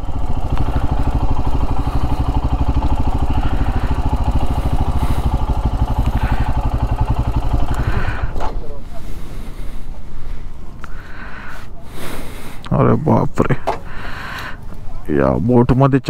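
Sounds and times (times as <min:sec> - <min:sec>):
motorcycle engine idling: 0:00.0 - 0:12.4.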